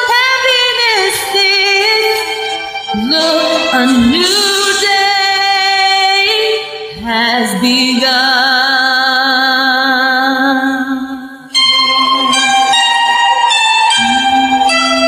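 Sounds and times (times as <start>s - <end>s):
woman singing long notes: 2.9s - 8.2s.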